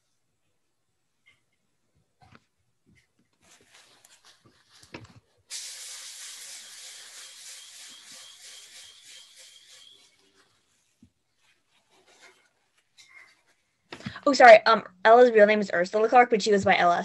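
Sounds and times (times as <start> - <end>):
faint crackling and rustling: 1.2 - 5.5, 10.1 - 14.4
hiss with high whistle: 5.5 - 10.6.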